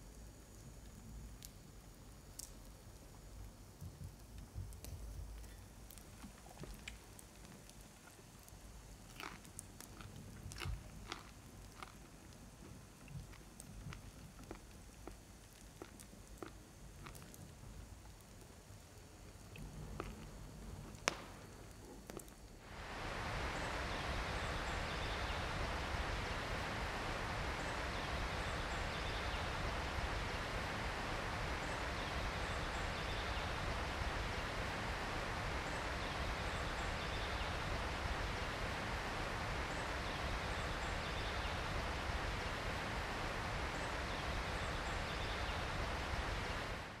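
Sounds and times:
rushing hiss: 22.6 - 47.0.

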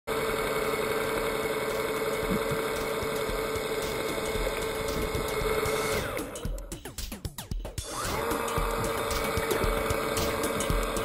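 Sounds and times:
underwater electric motor whine: 0.1 - 6.5, 7.8 - 11.0.

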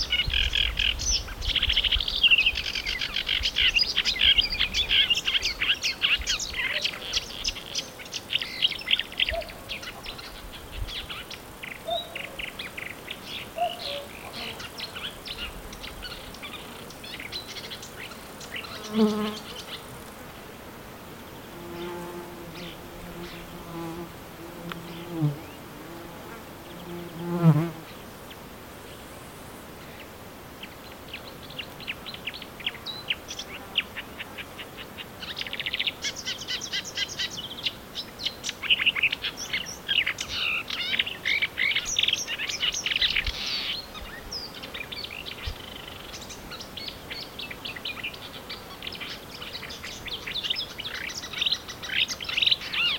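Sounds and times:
flying insect buzzing: 11.2 - 28.0.

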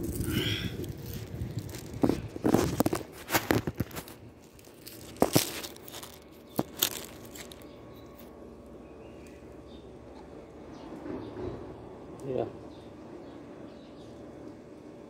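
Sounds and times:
crinkling handling noises: 0.0 - 10.3.

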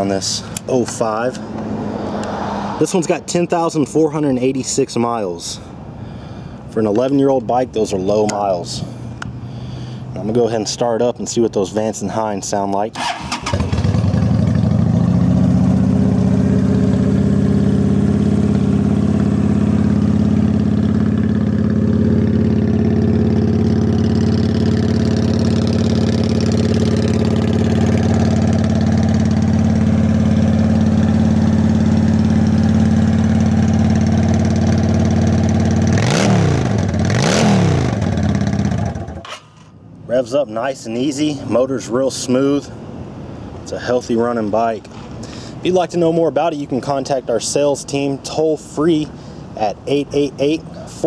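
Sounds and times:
motorcycle engine idling and revving: 13.0 - 40.3.

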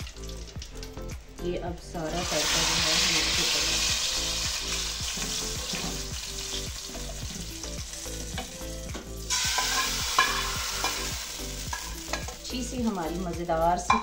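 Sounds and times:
hot oil sizzling: 0.0 - 14.0
metal spoon scraping a pan: 9.3 - 13.1.

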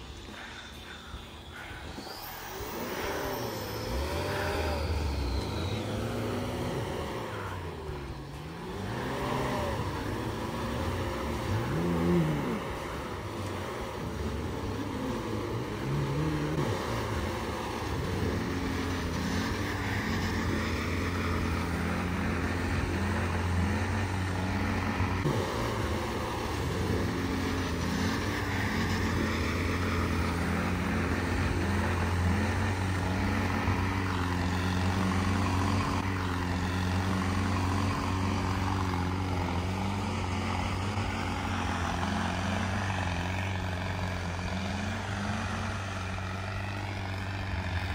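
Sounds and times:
off-road engines revving: 0.0 - 47.9.

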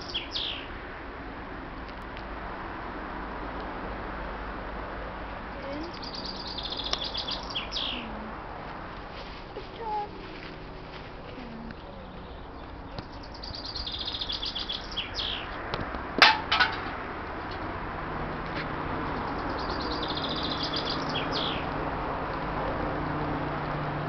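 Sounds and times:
songbird trilling: 0.0 - 0.7, 5.6 - 8.3, 11.6 - 15.6, 19.1 - 21.7
sharp metallic clang: 16.2 - 17.0.

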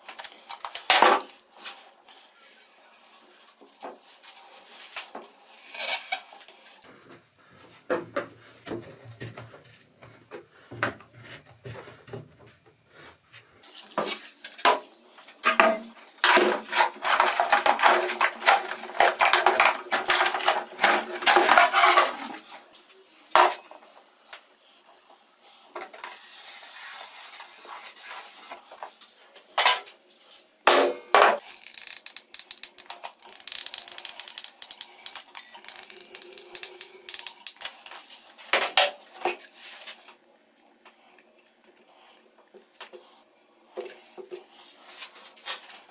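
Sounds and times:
clattering of parts: 13.9 - 22.6, 29.6 - 29.9, 30.7 - 40.0.

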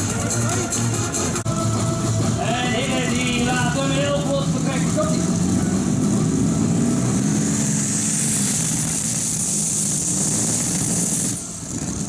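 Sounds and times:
tractor engine at high revs: 0.0 - 12.0
strong high hiss: 4.4 - 12.0.

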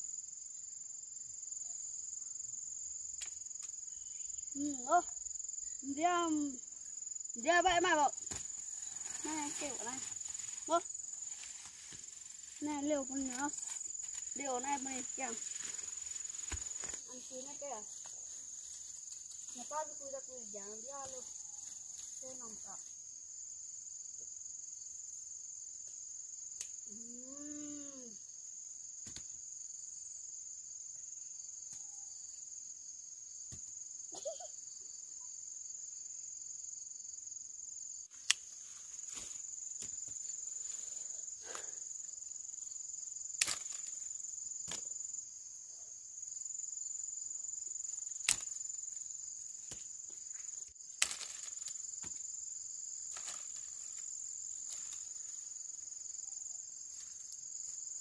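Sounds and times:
high-pitched insect chorus: 0.0 - 58.0
sharp snaps: 3.2 - 3.8, 26.6 - 26.8, 38.2 - 38.5, 48.2 - 48.6.

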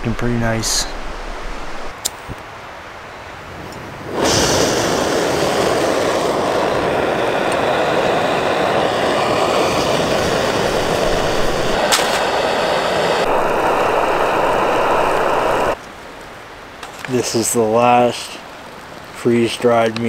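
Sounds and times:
gas stove burner hissing: 4.1 - 15.8.

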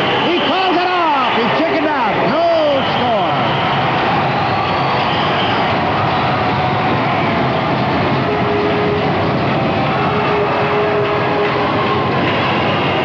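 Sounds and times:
arena crowd noise: 0.0 - 13.0
roller skate wheels rumbling: 3.5 - 13.0.

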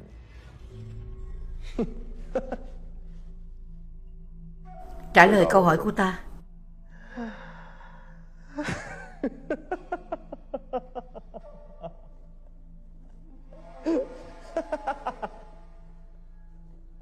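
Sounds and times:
man laughing: 1.8 - 2.8, 8.6 - 12.2, 13.9 - 15.7.

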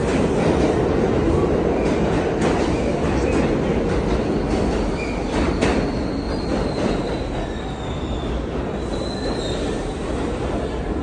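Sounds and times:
subway train rumble: 0.0 - 11.0
high wheel squeal: 5.0 - 10.0.

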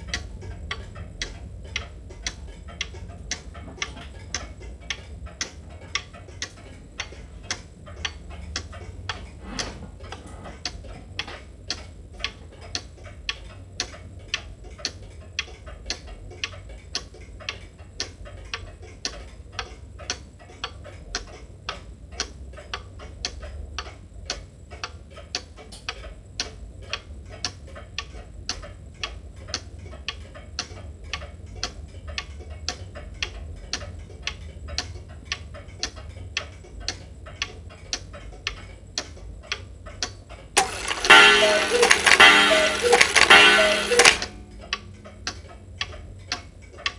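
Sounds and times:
clock pendulum ticking: 0.0 - 46.9.

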